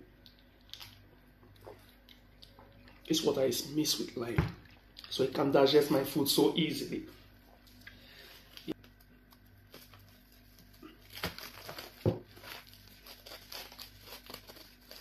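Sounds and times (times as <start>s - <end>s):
plastic wrap crinkling: 7.6s - 15.0s.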